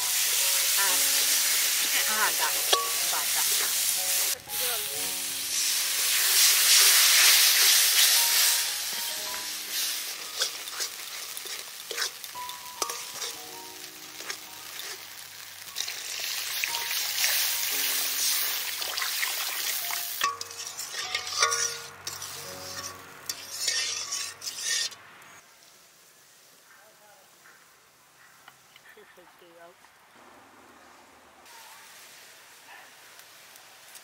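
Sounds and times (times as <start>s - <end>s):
paste sizzling in a pan: 0.0s - 25.0s
water poured into hot pan: 5.2s - 8.7s, 15.3s - 22.2s
metal spatula scraping a pan: 5.6s - 13.4s, 14.2s - 15.0s, 17.3s - 25.0s.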